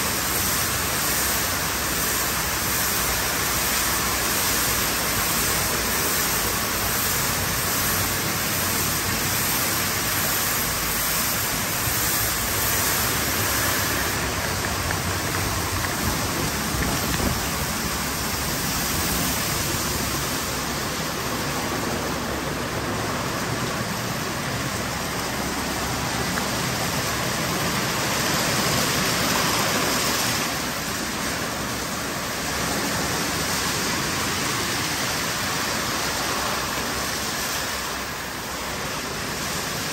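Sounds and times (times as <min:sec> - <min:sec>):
water spray rushing: 0:00.0 - 0:39.9.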